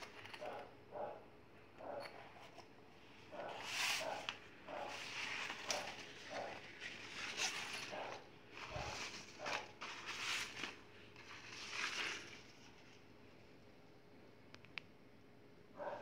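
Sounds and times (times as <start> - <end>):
fabric bag rustling: 3.4 - 13.0.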